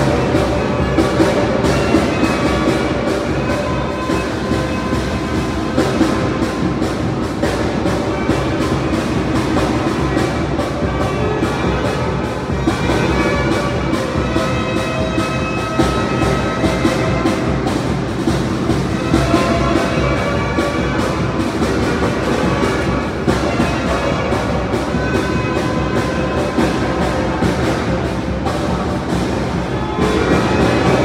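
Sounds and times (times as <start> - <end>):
brass instruments playing tune: 0.0 - 31.0
steady drum beat: 0.0 - 31.0.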